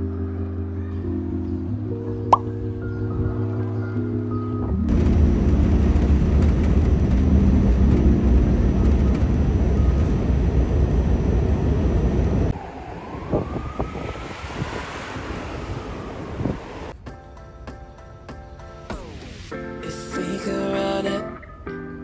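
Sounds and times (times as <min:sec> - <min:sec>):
street ambience: 0:00.0 - 0:20.5
subway train rumbling: 0:04.7 - 0:17.0
faint rising and falling tone: 0:09.4 - 0:17.0.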